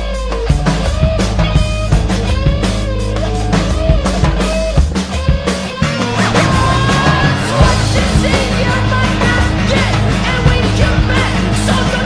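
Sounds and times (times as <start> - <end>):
loud rock music: 0.0 - 12.0
shouted vocal: 5.8 - 12.0.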